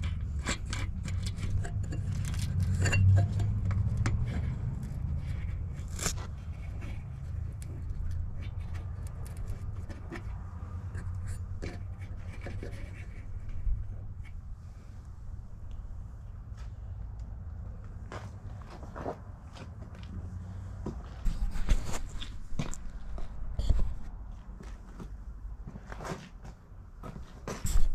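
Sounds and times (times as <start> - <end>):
metallic clicks and scrapes: 0.0 - 14.5, 21.2 - 24.1.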